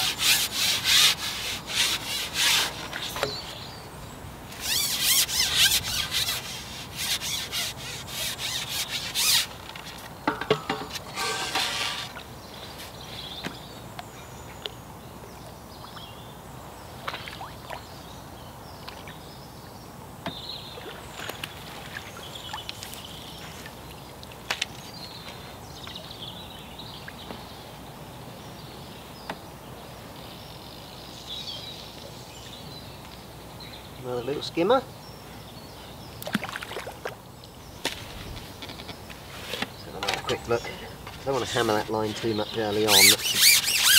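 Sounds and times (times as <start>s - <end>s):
fishing pole rasping rubbing: 0.0s - 3.6s, 4.6s - 9.5s, 11.0s - 12.2s, 41.3s - 43.9s.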